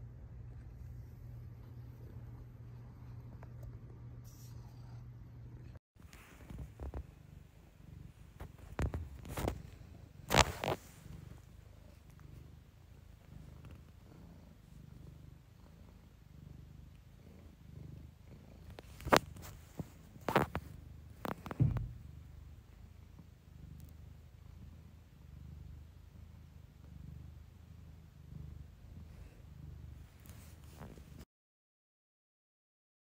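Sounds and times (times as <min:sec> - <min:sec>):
cat purring: 0:00.0 - 0:31.3
rustles and knocks: 0:08.4 - 0:11.0, 0:18.7 - 0:22.1.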